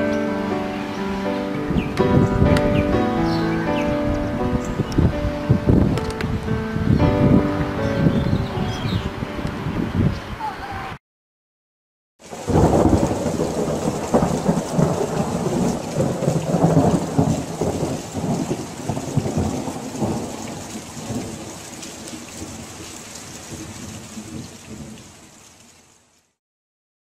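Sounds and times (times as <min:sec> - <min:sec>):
heavy rain: 0:00.0 - 0:11.0, 0:12.2 - 0:26.4
rolling thunder: 0:01.6 - 0:10.1, 0:12.3 - 0:21.6.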